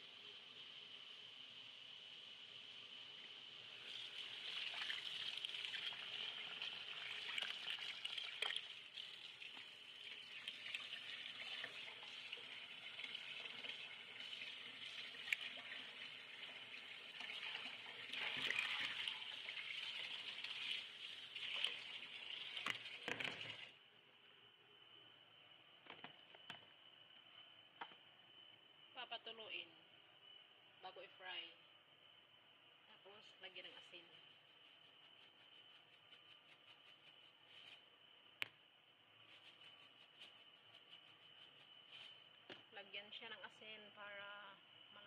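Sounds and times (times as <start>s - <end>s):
tap water running into colander: 3.1s - 23.7s.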